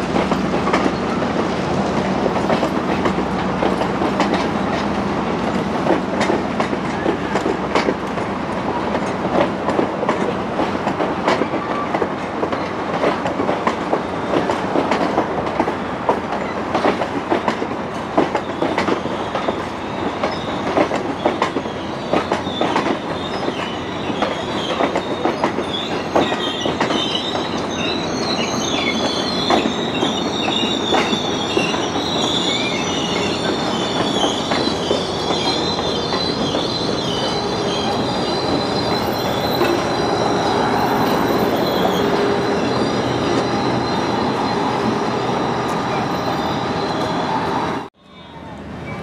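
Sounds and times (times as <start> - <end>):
train rumble: 0.0 - 49.0
train wheels squealing on rails: 6.2 - 8.0, 11.0 - 49.0.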